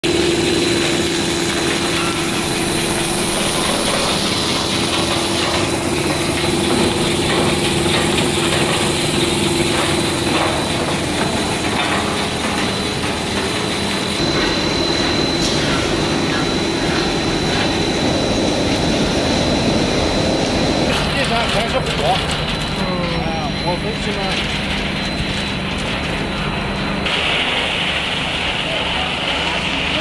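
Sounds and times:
production line machinery running: 0.0 - 30.0
thin high whine: 9.6 - 21.9.

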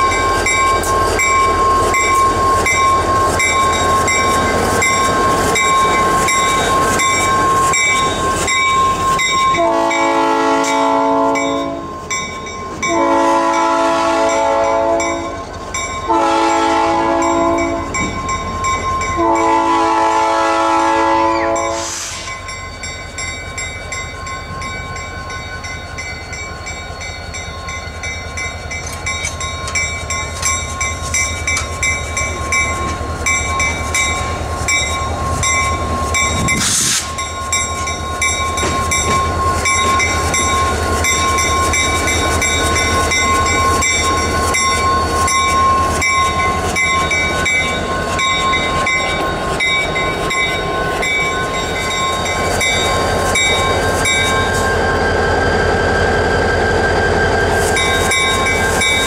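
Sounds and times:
diesel locomotive engine rumble: 0.0 - 59.0
locomotive horn chime blasts: 9.4 - 12.0, 12.8 - 15.4, 16.0 - 18.2, 19.0 - 22.3.

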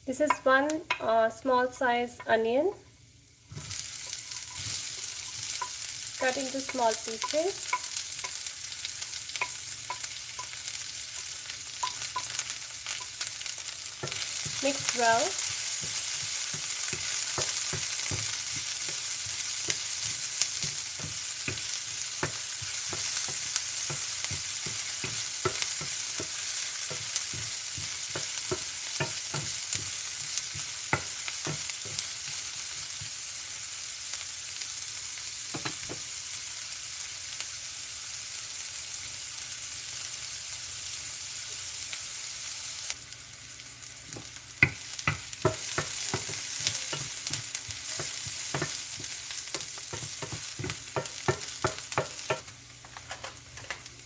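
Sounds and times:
onion sizzling in oil: 0.0 - 54.0
spatula scraping and knocking pan: 3.5 - 8.4, 11.2 - 33.2, 44.1 - 53.8.

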